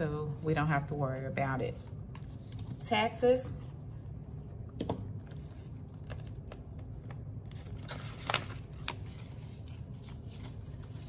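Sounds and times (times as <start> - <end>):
low steady hum: 0.0 - 11.0
paper bills being handled: 5.2 - 11.0.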